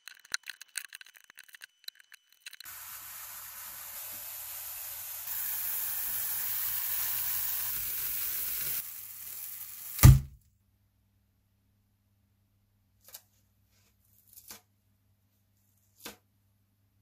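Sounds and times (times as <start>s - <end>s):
aerosol spray hissing: 2.7s - 10.2s.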